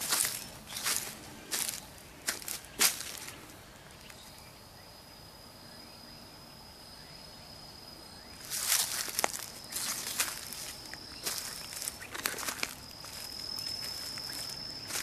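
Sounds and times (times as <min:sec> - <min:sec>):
footsteps on dry leaves: 0:00.0 - 0:04.2, 0:08.4 - 0:15.0
high-pitched insect trill: 0:00.0 - 0:15.0.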